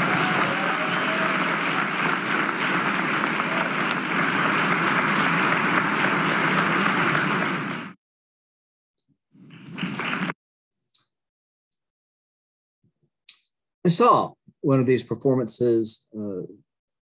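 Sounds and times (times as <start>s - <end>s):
audience applauding: 0.0s - 8.0s, 9.4s - 10.4s.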